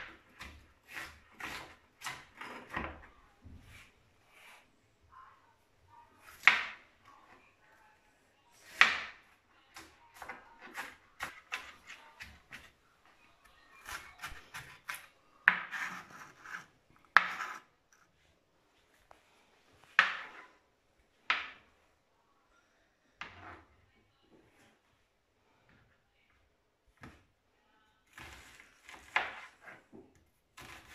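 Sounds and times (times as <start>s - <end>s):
knife chopping on plastic board: 0.0s - 3.1s, 8.6s - 12.7s, 13.8s - 16.5s.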